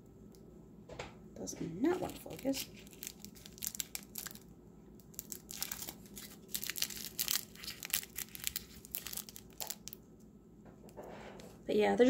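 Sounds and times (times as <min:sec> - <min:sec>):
plastic baggies crinkling: 0:01.8 - 0:10.0.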